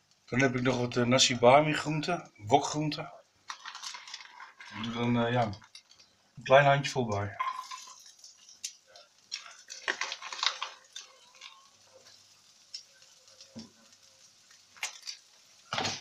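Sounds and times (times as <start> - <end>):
scraping and clicking in a wok: 3.5 - 6.1, 7.6 - 16.0
vegetables sizzling in a wok: 7.4 - 16.0.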